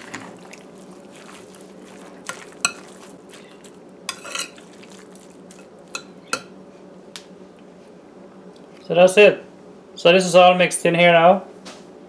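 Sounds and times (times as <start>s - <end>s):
spoon stirring wet meat: 0.0s - 6.6s
spoon clinking against glass: 4.1s - 4.6s, 5.9s - 6.5s.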